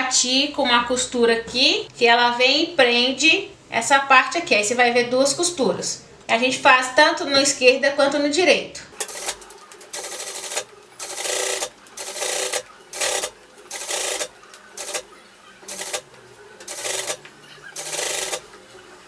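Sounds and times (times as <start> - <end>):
sewing machine running: 9.0 - 19.0.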